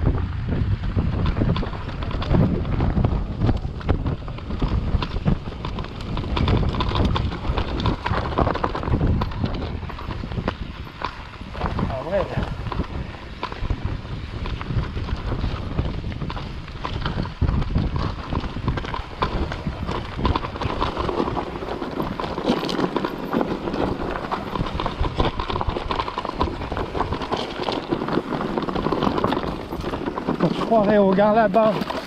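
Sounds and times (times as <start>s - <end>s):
bike rattling: 0.0s - 32.0s
tyres crunching on stones: 16.2s - 32.0s.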